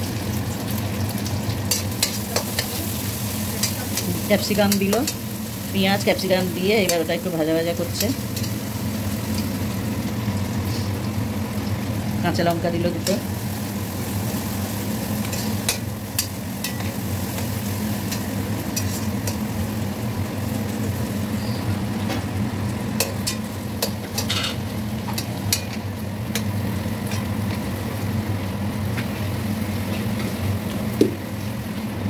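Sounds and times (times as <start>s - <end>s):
vegetables sizzling in oil: 0.0s - 32.0s.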